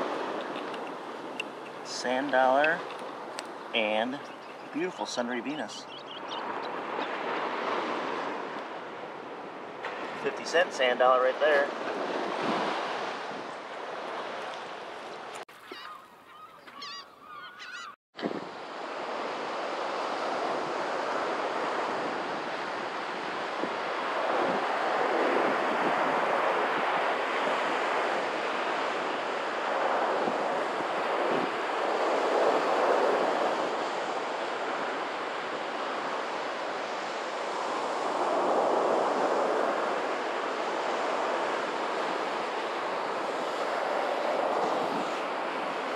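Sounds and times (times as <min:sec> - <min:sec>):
surf washing up beach: 0:00.0 - 0:15.5, 0:18.2 - 0:45.9
birds calling: 0:02.8 - 0:04.8, 0:05.7 - 0:07.2, 0:15.5 - 0:18.0
wind buffeting microphone: 0:11.7 - 0:13.6.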